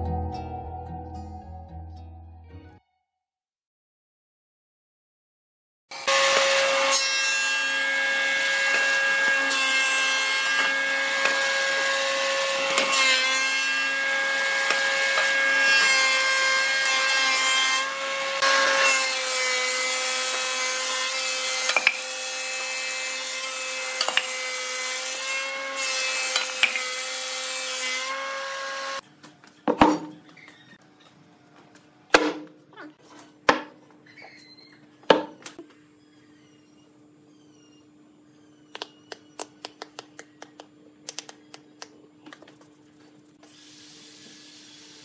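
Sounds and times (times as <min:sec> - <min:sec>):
planer whining and cutting wood: 0:05.9 - 0:29.0.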